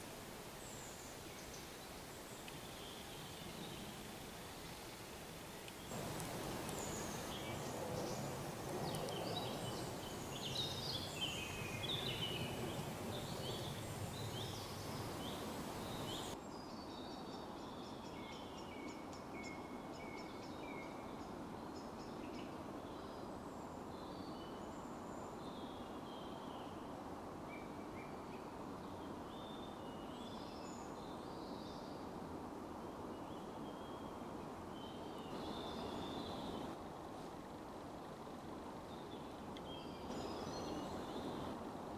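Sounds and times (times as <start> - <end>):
background hiss: 0.0 - 41.9
small birds singing: 0.6 - 23.3, 34.7 - 36.8, 38.9 - 41.6.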